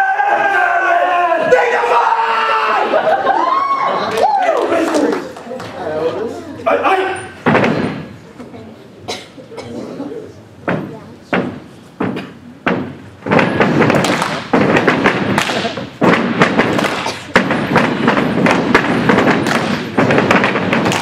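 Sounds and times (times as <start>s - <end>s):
clapping: 4.1s - 5.7s, 14.0s - 14.4s
stomping: 10.6s - 21.0s.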